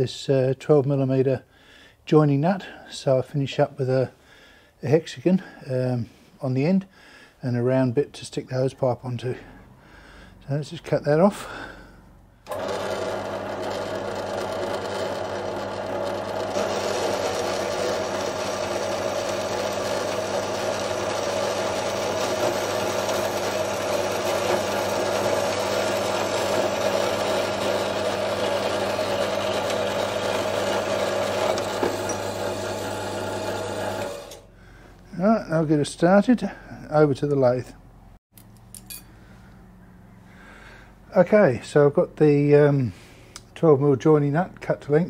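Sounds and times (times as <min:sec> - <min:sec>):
bandsaw cutting steel: 0:12.5 - 0:34.5.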